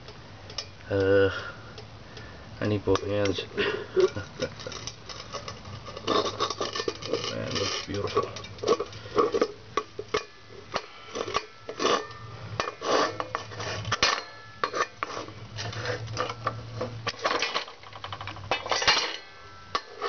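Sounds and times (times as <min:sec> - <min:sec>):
metal mold clinking and clanking: 0:04.0 - 0:20.0.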